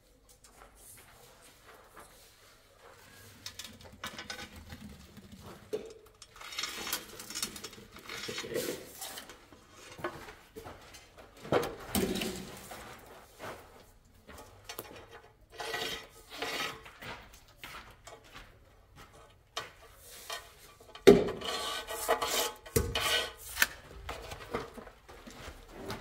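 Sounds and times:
metal hand tools scraping and clinking: 0:05.8 - 0:10.0, 0:15.5 - 0:16.8, 0:20.1 - 0:23.8.

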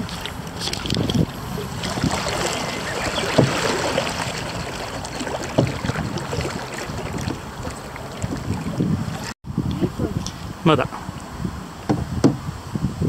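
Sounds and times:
paddles dipping in water: 0:00.0 - 0:09.4
water washing around canoe: 0:00.0 - 0:09.4
sharp knocks: 0:02.0 - 0:08.6.

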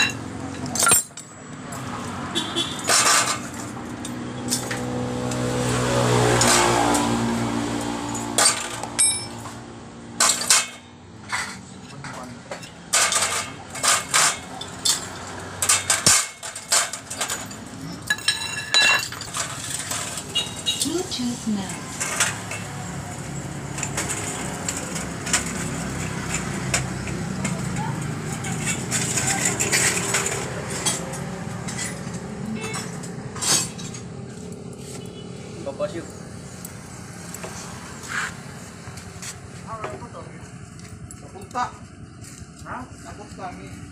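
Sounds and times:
metal parts clinking on steel basin: 0:00.0 - 0:01.9, 0:02.7 - 0:04.8, 0:08.1 - 0:09.6, 0:10.2 - 0:21.2, 0:21.9 - 0:22.8, 0:23.7 - 0:34.1
ringing metal clang: 0:08.1 - 0:09.4
metal parts knocking in steel basin: 0:10.2 - 0:11.6, 0:12.5 - 0:21.0.

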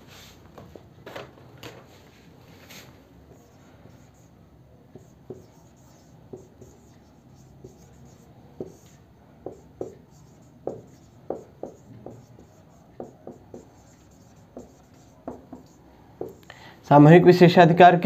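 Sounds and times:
marker writing on whiteboard: 0:03.2 - 0:16.4.

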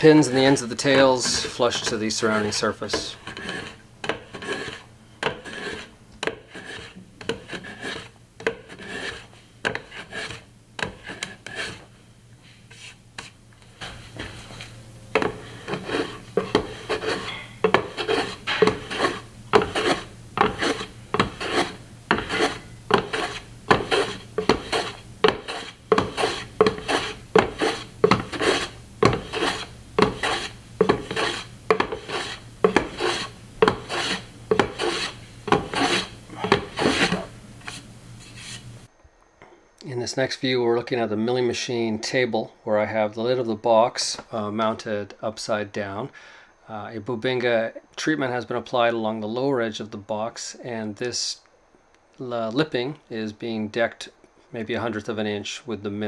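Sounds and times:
hand plane shaving wood: 0:00.0 - 0:11.9, 0:12.7 - 0:38.6.

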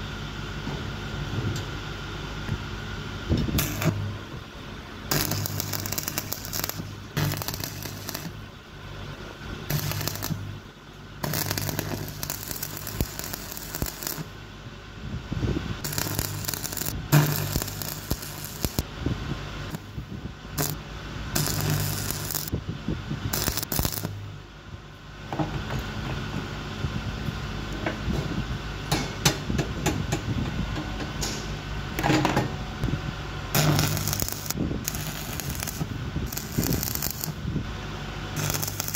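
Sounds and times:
steady low hum: 0:00.0 - 0:38.9
welding arc crackling: 0:03.4 - 0:04.2, 0:05.1 - 0:08.5, 0:09.6 - 0:14.3, 0:15.8 - 0:18.9, 0:19.7 - 0:20.0, 0:20.6 - 0:22.6, 0:23.3 - 0:24.3, 0:33.5 - 0:37.4, 0:38.4 - 0:38.9.

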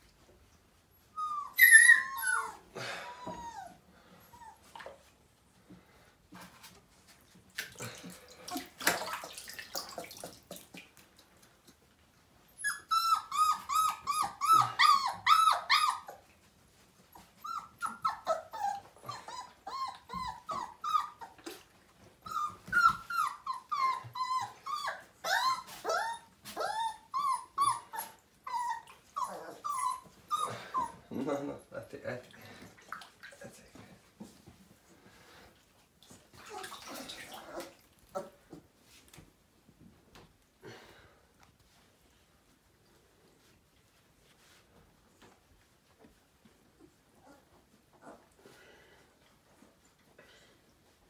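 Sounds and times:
puppies whimpering: 0:01.1 - 0:04.8, 0:12.6 - 0:16.3, 0:17.2 - 0:21.6, 0:22.2 - 0:31.2.

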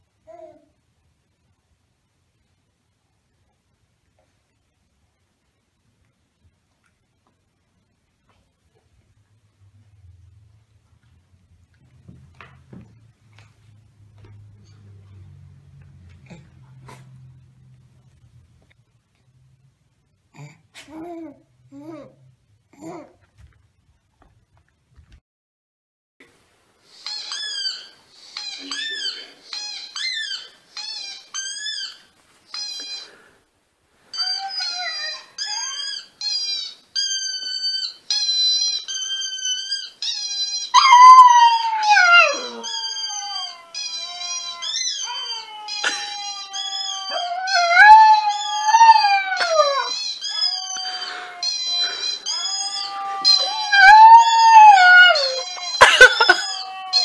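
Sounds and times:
puppy howling: 0:34.2 - 0:57.0.

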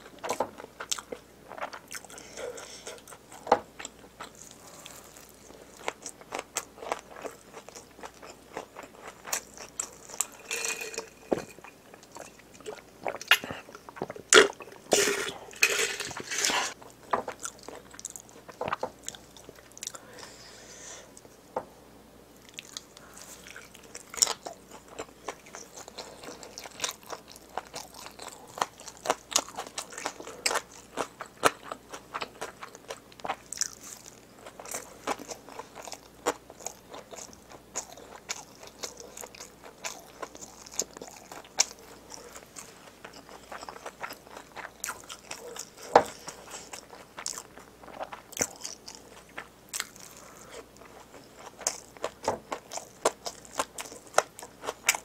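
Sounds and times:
close chewing with mouth clicks: 0:00.0 - 0:15.5, 0:22.4 - 0:55.0.

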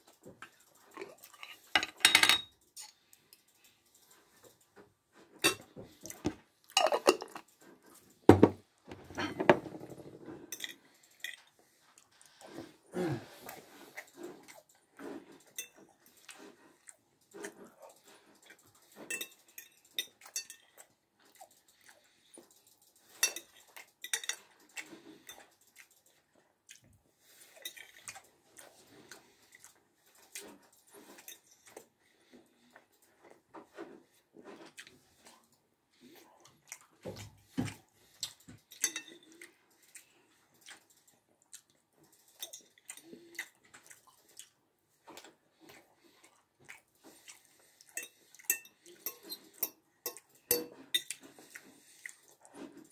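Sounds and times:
chewing: 0:00.0 - 0:01.7, 0:02.7 - 0:08.3, 0:10.2 - 0:52.9
cutlery clinking on glass bowl: 0:01.4 - 0:02.5, 0:05.4 - 0:07.4, 0:10.5 - 0:11.4, 0:15.6 - 0:15.8, 0:19.0 - 0:20.8, 0:23.2 - 0:24.4, 0:38.7 - 0:39.3, 0:42.4 - 0:42.8, 0:48.0 - 0:51.2.

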